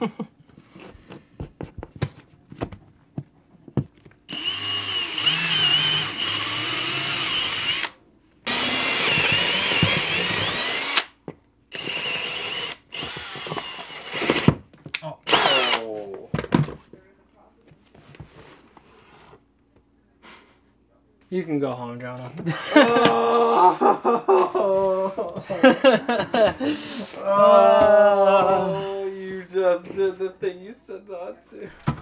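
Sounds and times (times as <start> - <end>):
cordless drill driving a screw: 4.3 - 14.6, 15.3 - 15.9.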